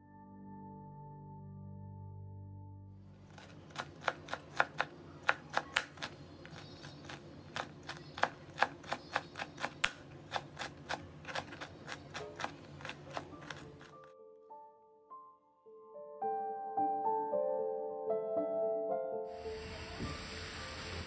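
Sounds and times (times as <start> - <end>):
knife chopping on cutting board: 3.3 - 14.0.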